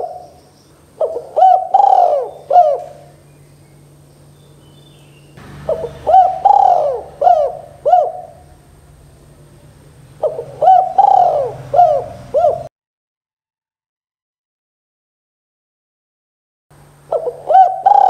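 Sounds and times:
dove cooing: 0.0 - 3.3, 5.5 - 12.7, 17.1 - 18.0.

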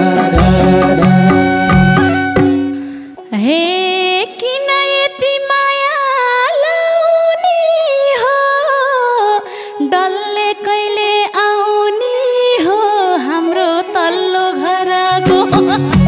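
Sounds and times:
woman singing folk song: 3.2 - 16.0.

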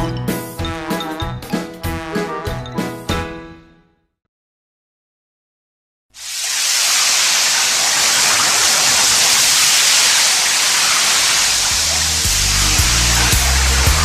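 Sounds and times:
rain hiss: 6.2 - 14.0
low bass music: 11.9 - 14.0.

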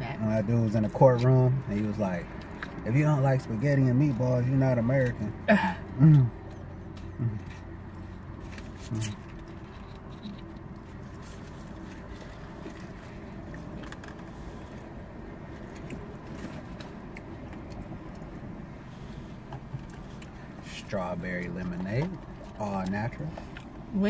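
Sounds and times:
car cabin hum: 0.0 - 24.0
person chewing: 5.8 - 20.6, 21.7 - 23.9.

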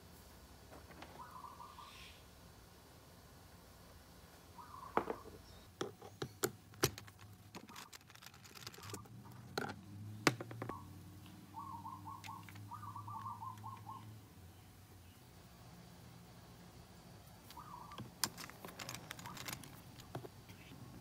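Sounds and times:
bird chirping: 1.1 - 2.2, 4.5 - 6.4, 10.6 - 15.3, 17.5 - 18.2
plastic and metal clicks and knocks: 5.8 - 10.8.

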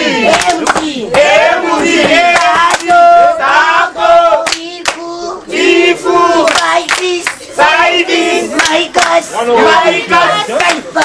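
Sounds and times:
group singing a chant: 0.0 - 11.0
sharp hand claps: 0.3 - 1.3, 2.0 - 3.0, 4.4 - 5.0, 6.4 - 7.4, 8.6 - 9.2.

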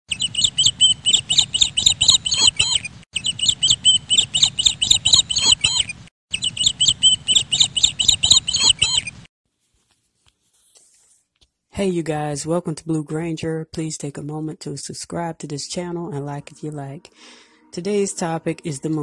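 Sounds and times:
rapid high-pitched chirping: 0.1 - 9.3.

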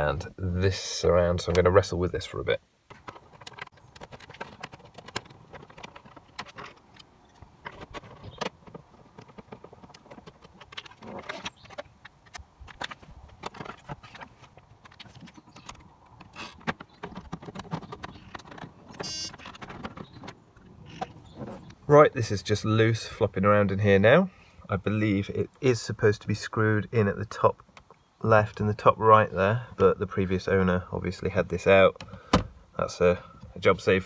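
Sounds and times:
plastic panels clicking and rattling: 2.9 - 21.8.

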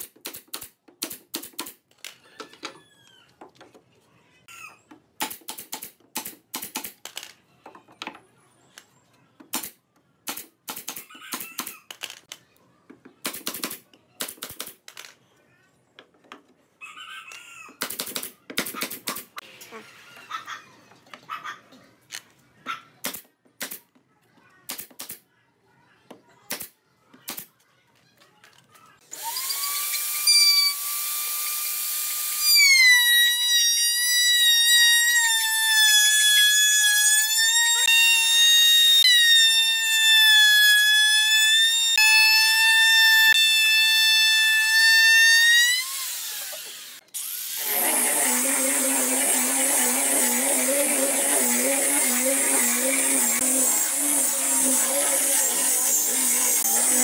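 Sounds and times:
pneumatic nail gun shots: 0.0 - 1.8, 5.2 - 7.0, 24.7 - 25.2
wood router high whine: 29.2 - 57.0
angle grinder sanding: 32.0 - 57.0.

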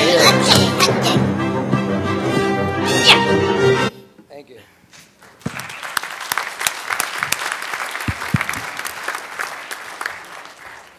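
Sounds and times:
audience applauding: 5.2 - 10.9.

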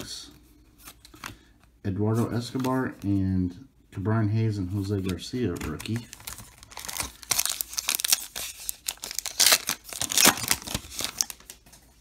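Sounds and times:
wrapper tearing and crinkling: 5.8 - 11.7.

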